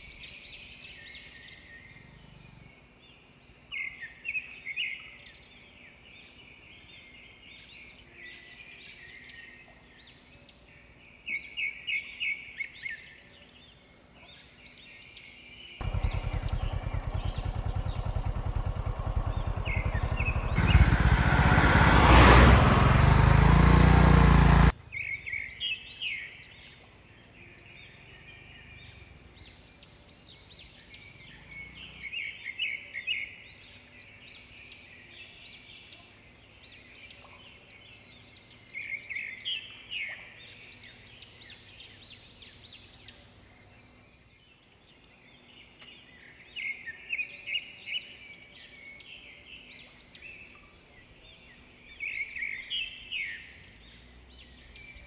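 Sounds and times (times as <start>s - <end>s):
birds chirping: 0.0s - 55.0s
car passing with road noise: 15.8s - 25.0s.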